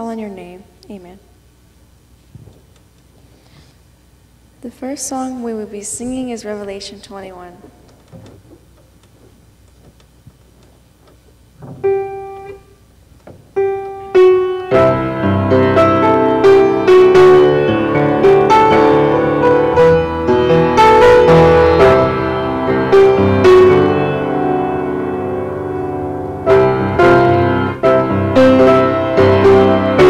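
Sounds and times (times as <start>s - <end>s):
piano playing chords: 11.4s - 30.0s.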